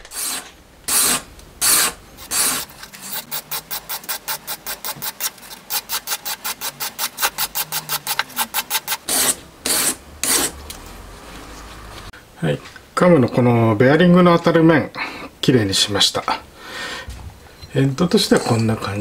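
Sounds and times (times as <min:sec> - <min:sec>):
abrasive bar rubbing on metal: 0:00.0 - 0:10.6.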